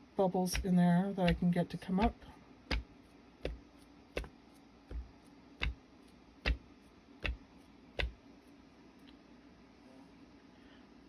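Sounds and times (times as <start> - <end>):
mold knocked on work surface: 1.3 - 3.6, 4.2 - 5.8, 6.4 - 7.4.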